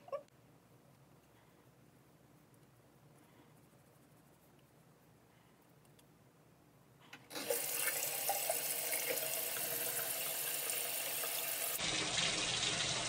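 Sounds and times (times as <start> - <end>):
water running into sink: 7.3 - 13.0.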